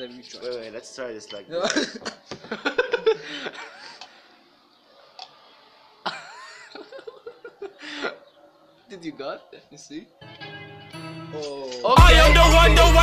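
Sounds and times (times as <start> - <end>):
young men laughing: 1.5 - 4.2, 6.0 - 8.3.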